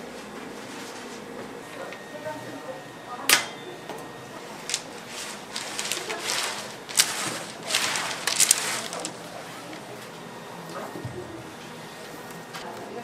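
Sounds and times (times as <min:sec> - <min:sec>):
candy sticks rubbing on steel: 0:04.4 - 0:09.9.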